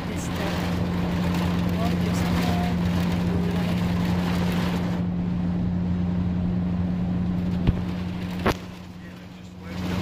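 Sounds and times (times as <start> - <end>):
rain hissing on windscreen: 0.0 - 5.0, 7.4 - 10.0
engine and tyres droning: 0.0 - 10.0.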